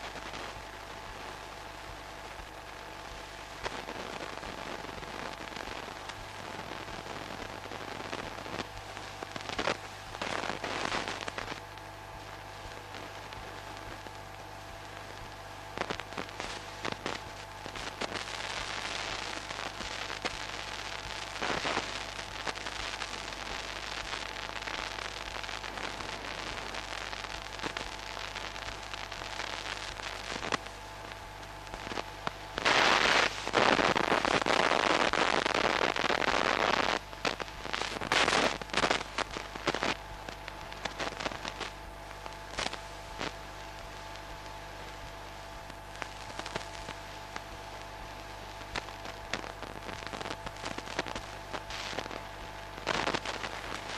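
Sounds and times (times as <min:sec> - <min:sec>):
crackles and clicks: 0:00.0 - 0:53.9
electrical hum and hiss: 0:00.0 - 0:53.9.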